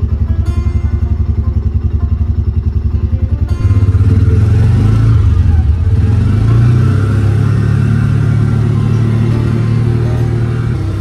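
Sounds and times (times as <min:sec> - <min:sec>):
vehicle engine droning: 0:00.0 - 0:11.0.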